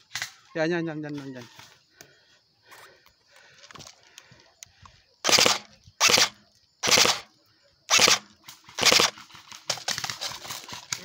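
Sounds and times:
airsoft gun full-auto bursts: 5.2 - 7.3, 7.9 - 10.2.

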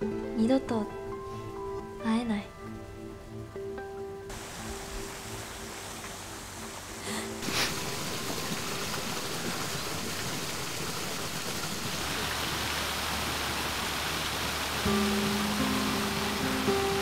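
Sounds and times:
fountain water splashing: 4.3 - 17.0.

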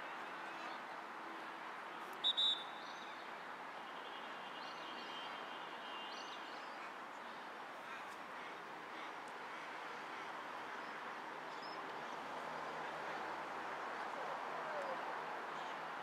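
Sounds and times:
referee's whistle blasts: 2.2 - 2.7.

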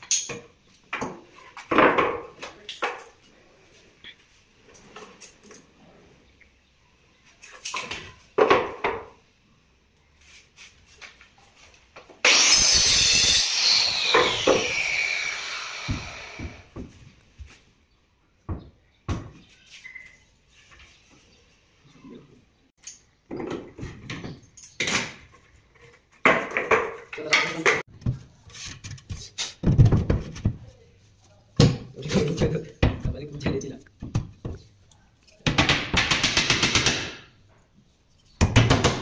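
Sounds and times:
electric saw cutting wood: 12.2 - 16.7.

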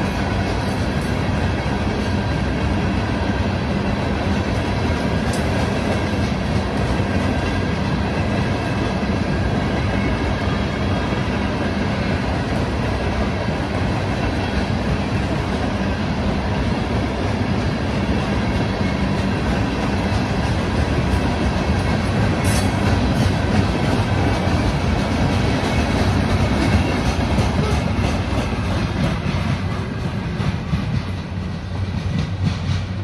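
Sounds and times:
train wheels rumbling on rails: 0.0 - 33.0
faint clickety-clack: 4.2 - 9.0, 18.2 - 33.0.

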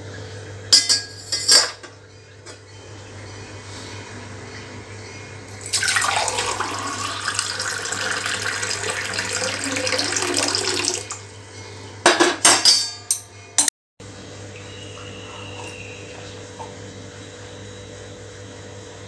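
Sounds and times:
water pouring into steel tumbler: 5.6 - 11.1.

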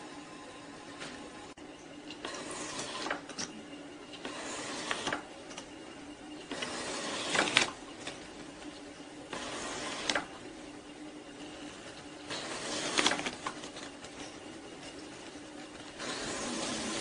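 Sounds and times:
leather skiving machine running: 0.0 - 17.0
knife shaving leather: 12.3 - 17.0.

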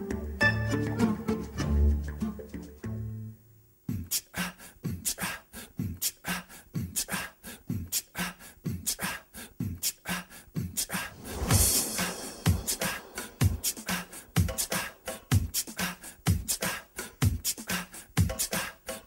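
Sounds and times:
plucked bass music: 0.0 - 3.4
beatbox-style percussion track: 3.9 - 19.0.

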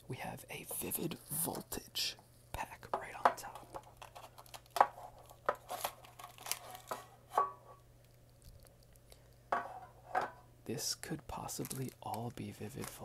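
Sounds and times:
cardboard rustling: 3.6 - 7.2
foil packet crinkling: 3.7 - 7.2, 11.3 - 13.0.

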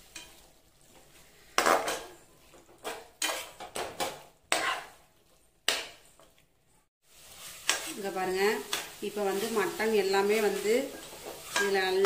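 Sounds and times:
metal spoon scraping a pot: 2.8 - 5.0, 8.6 - 12.0.

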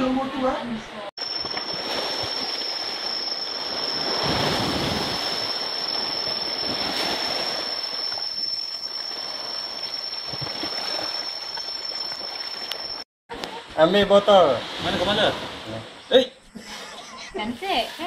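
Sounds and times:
waves washing against rocks: 1.2 - 8.4
steady high-pitched tone: 1.2 - 13.0.

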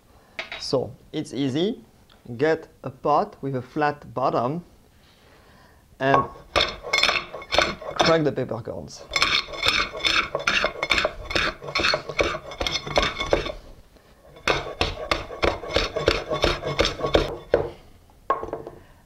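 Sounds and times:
metal pot scraping: 6.2 - 8.2, 9.0 - 17.7.

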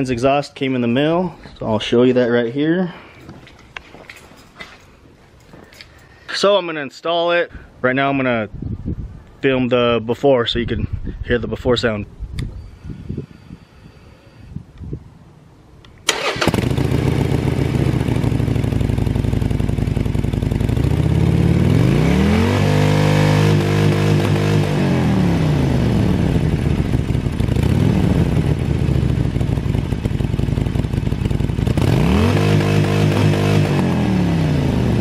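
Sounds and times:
motorcycle engine idling and revving: 16.1 - 35.0.

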